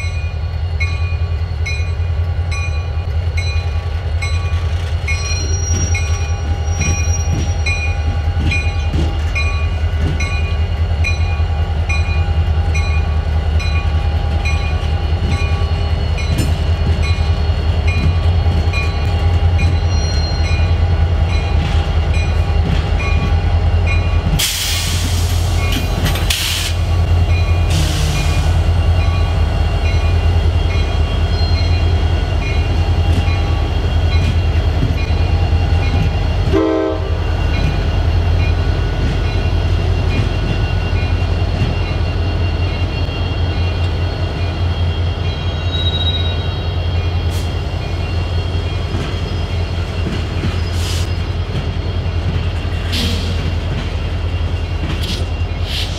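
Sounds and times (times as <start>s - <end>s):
diesel locomotive engine rumble: 0.0s - 55.9s
air hiss bursts: 24.4s - 26.8s, 27.7s - 28.5s.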